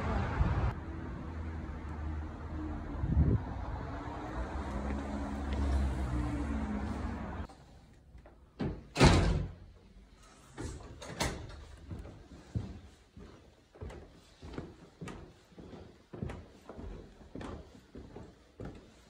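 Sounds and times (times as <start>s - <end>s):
low traffic rumble: 0.0s - 8.0s
door shutting with a thud: 8.6s - 9.6s.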